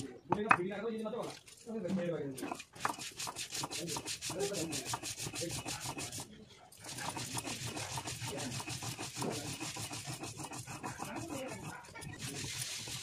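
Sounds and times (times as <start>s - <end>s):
stone grinding on stone: 2.4s - 13.0s.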